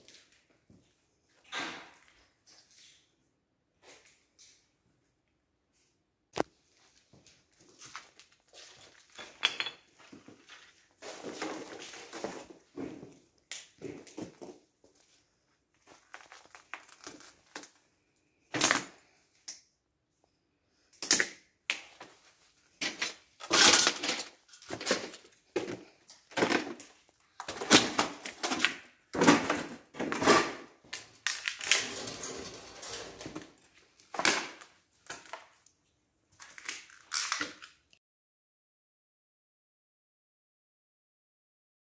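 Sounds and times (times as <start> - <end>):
footsteps crunching over debris: 6.8 - 17.8.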